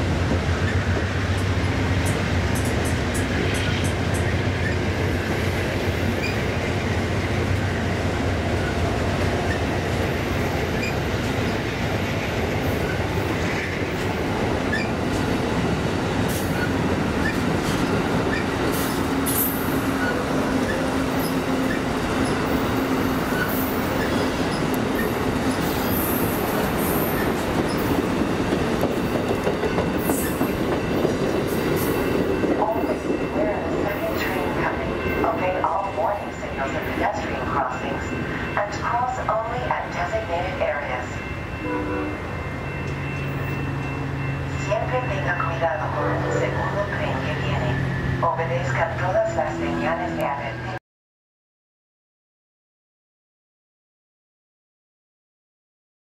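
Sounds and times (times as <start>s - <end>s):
train wheels rolling on rails: 0.0s - 41.6s.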